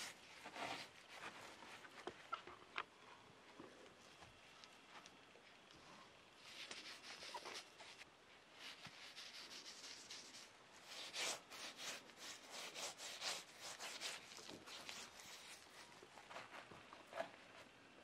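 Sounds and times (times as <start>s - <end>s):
gritty scraping of salted meat: 8.6s - 16.7s.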